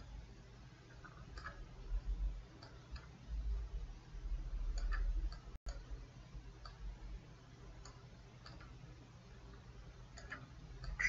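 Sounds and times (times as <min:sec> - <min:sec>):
low steady hum: 0:00.0 - 0:11.0
computer mouse clicks: 0:00.9 - 0:01.7, 0:02.6 - 0:03.2, 0:04.7 - 0:05.9, 0:07.8 - 0:08.8, 0:10.1 - 0:11.0.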